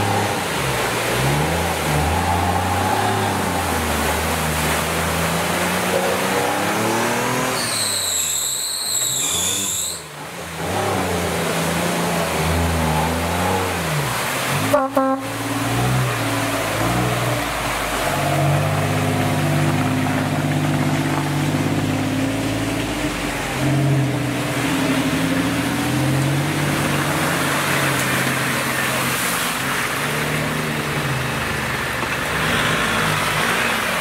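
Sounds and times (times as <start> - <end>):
engine revving and easing off: 0.0 - 7.9.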